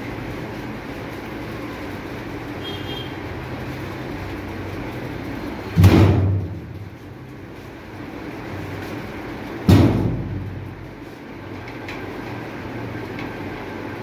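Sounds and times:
loud thumps in steel tub: 5.8s - 6.6s, 9.6s - 10.6s.

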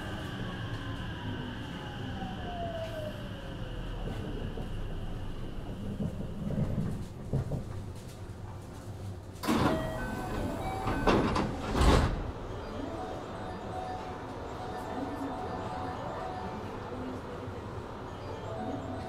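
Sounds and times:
electric train humming: 0.0s - 7.5s, 9.4s - 19.0s
train doors opening with air burst: 9.4s - 12.6s.

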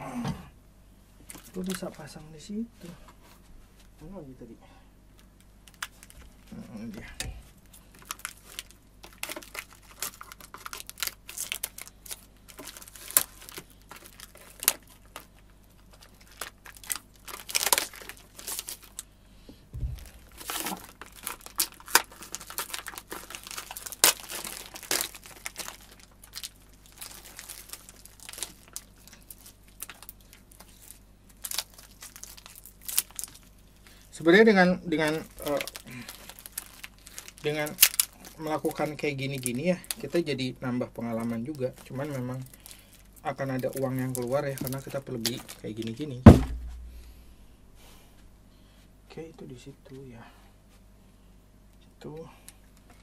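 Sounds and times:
plastic packaging crinkling and tearing: 1.3s - 2.2s, 5.2s - 19.2s, 19.8s - 46.9s
low thump: 19.8s - 20.0s, 46.3s - 47.1s.

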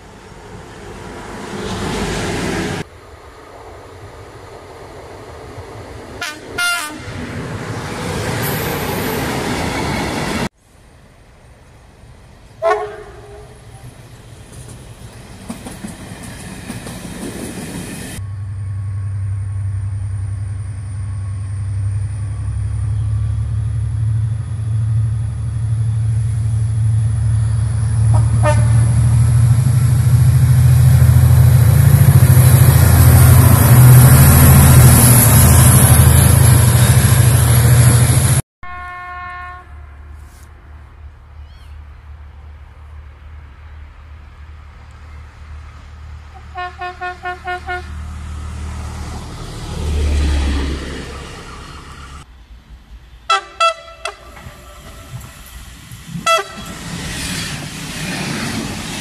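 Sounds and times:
diesel locomotive engine droning: 0.0s - 59.0s
train horn toots: 6.2s - 7.2s, 12.6s - 13.7s, 28.0s - 29.1s, 38.6s - 40.3s, 46.4s - 48.0s, 53.3s - 55.4s, 56.2s - 56.8s.

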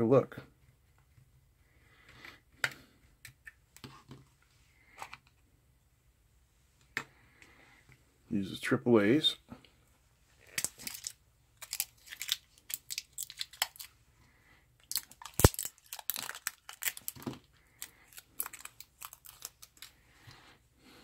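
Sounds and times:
plastic wrap crackling: 10.4s - 13.9s, 14.8s - 19.9s
plastic wrap snapping: 10.4s - 13.9s, 14.8s - 19.9s.

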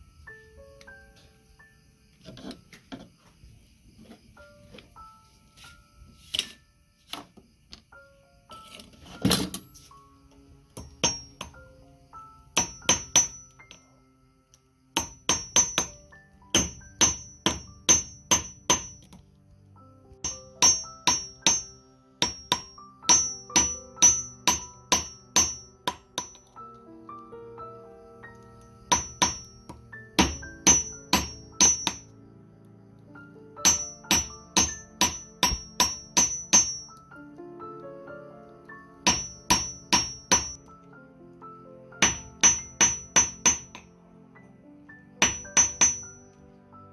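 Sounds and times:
soft background music: 0.0s - 46.9s
hammer striking metal on anvil: 10.8s - 11.6s, 12.6s - 13.8s, 15.0s - 19.1s, 20.2s - 26.5s, 28.9s - 29.6s, 30.2s - 32.1s, 33.6s - 36.9s, 39.0s - 40.6s, 42.0s - 43.8s, 45.2s - 46.2s.

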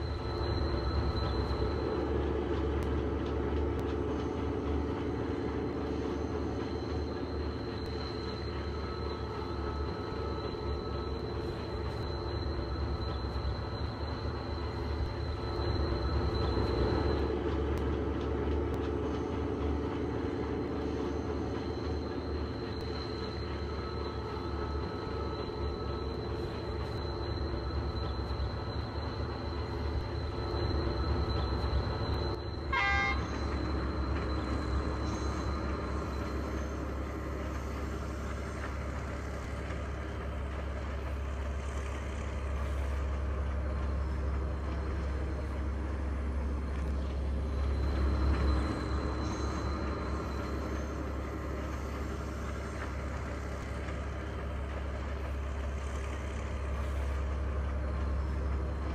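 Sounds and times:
diesel train engine humming: 0.0s - 58.9s
train horn toot: 32.6s - 33.6s.

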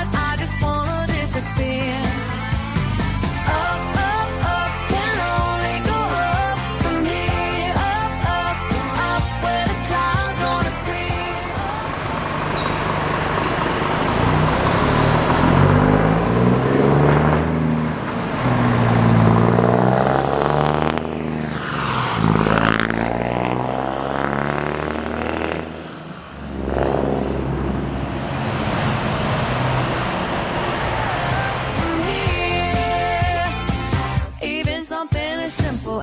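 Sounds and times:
diesel truck accelerating past: 6.8s - 34.3s.

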